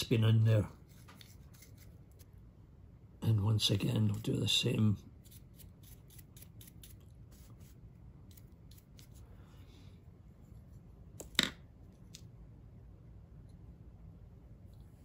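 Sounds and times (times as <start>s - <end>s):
dry brush scratching: 0.7s - 2.3s, 5.2s - 9.3s.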